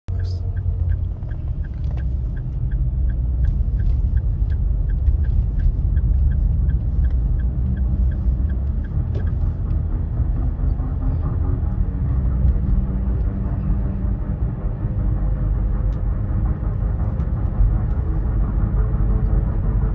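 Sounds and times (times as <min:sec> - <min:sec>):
car engine rumbling: 0:00.0 - 0:19.9
regular ticking: 0:00.1 - 0:13.3.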